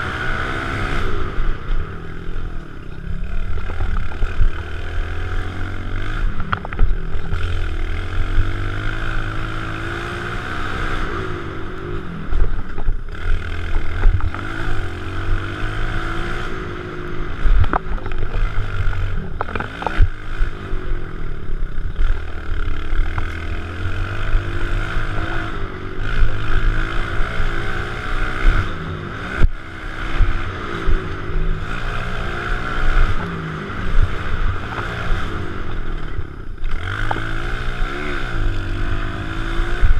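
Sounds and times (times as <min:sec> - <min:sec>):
small motorcycle engine revving: 0:00.0 - 0:39.9.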